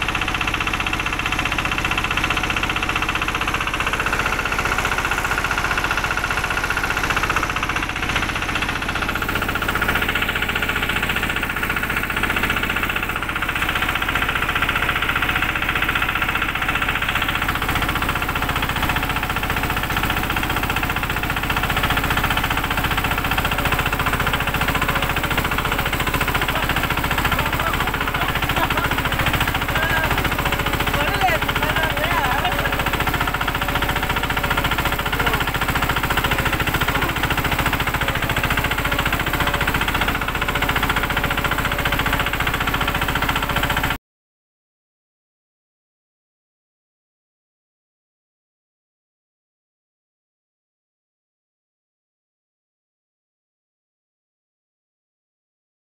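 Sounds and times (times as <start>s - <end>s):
vehicle engine running under load: 0.0s - 44.0s.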